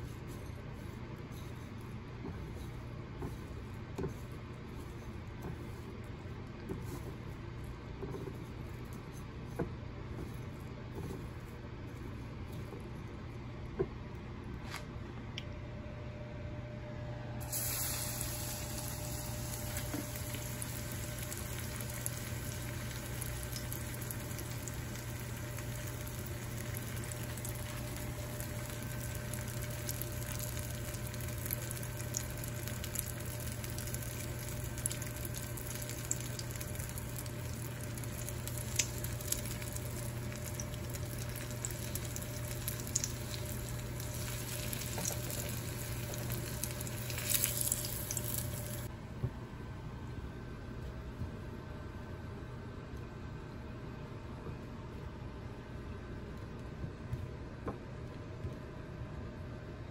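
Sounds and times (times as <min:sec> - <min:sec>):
food sizzling in hot oil: 0:17.4 - 0:48.9.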